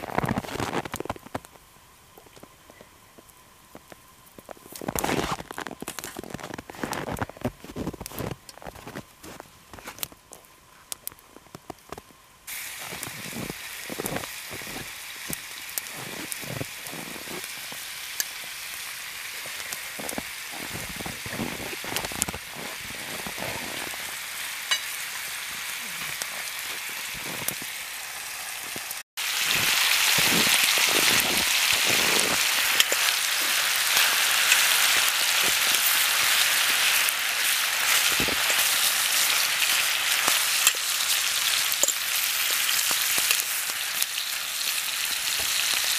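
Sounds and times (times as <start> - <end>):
food sizzling in a frying pan: 12.5 - 45.9.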